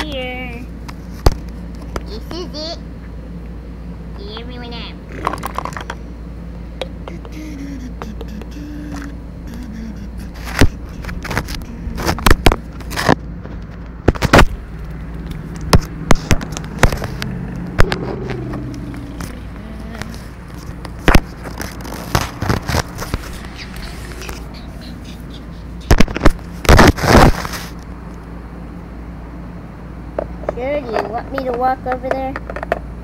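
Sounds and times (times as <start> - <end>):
plastic toys knocking and scraping: 5.2 - 6.0, 30.2 - 32.9
low rumble: 9.2 - 26.7.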